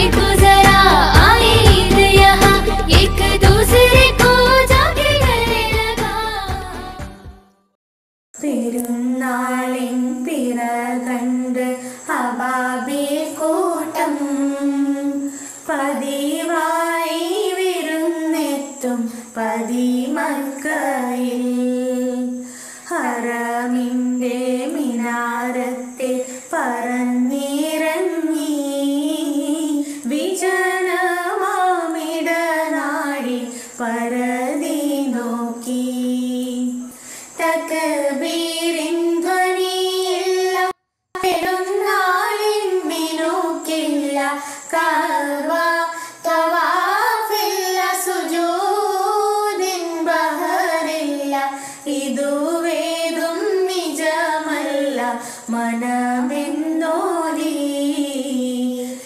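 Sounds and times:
girls singing together: 0.0s - 7.4s, 8.4s - 59.0s.

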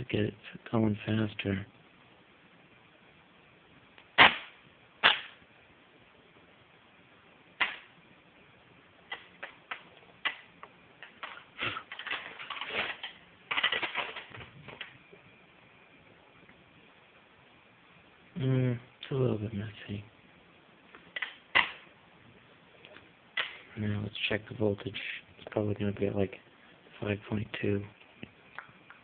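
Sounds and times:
electrical sparks snapping: 4.0s - 5.4s, 7.6s - 8.0s, 9.1s - 15.0s, 21.1s - 21.9s
electrical crackling: 4.0s - 5.5s, 7.5s - 15.2s, 21.0s - 22.0s.

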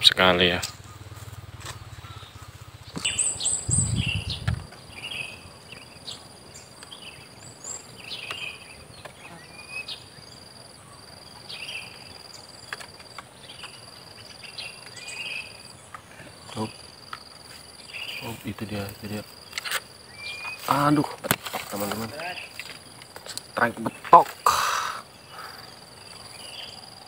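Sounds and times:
lower insect tone: 0.0s - 27.0s
low rumble: 0.7s - 4.7s.

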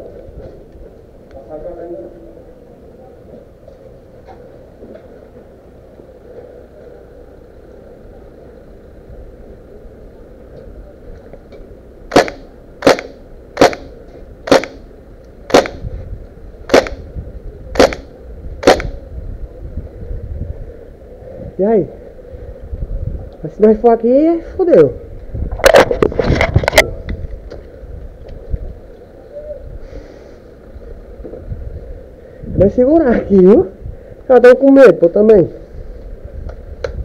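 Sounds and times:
airsoft gun shots: 12.1s - 14.8s, 15.5s - 15.8s, 16.7s - 17.1s, 17.7s - 19.0s.

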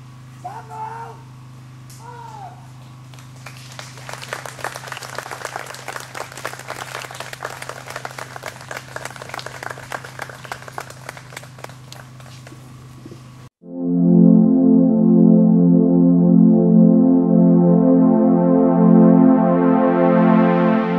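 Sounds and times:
audience applauding: 3.1s - 12.7s.

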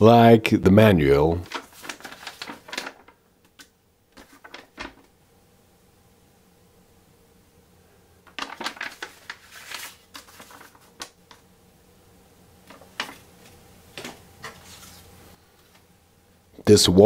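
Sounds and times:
paper rustling and crinkling: 1.4s - 5.1s, 8.3s - 11.4s, 12.6s - 15.2s.

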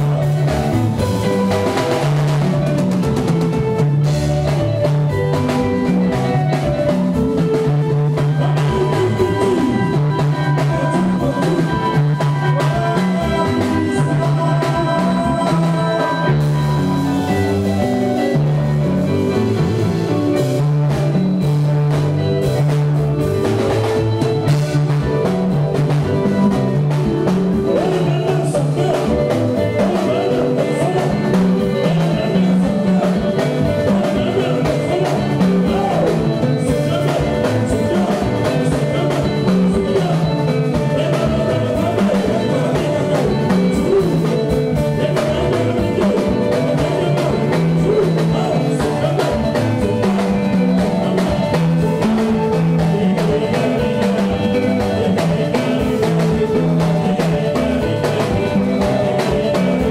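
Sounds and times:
drum kit: 0.0s - 59.9s
electric guitar: 0.0s - 59.9s
person singing: 0.0s - 59.9s
repeating bass line: 0.0s - 59.9s.

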